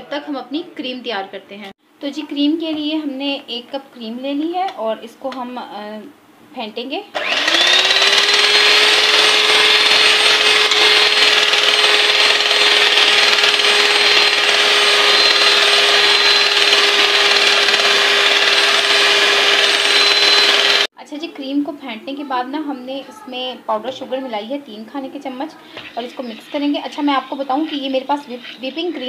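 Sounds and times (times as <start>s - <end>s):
electric mixer whirring: 7.2s - 20.9s.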